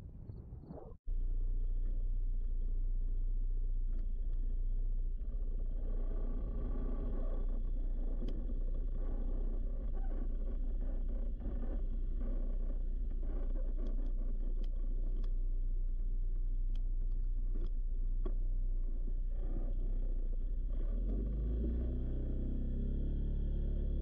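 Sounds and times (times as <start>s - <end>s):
atv engine rumbling: 1.1s - 24.0s
light ticks and rattles: 1.8s - 21.2s.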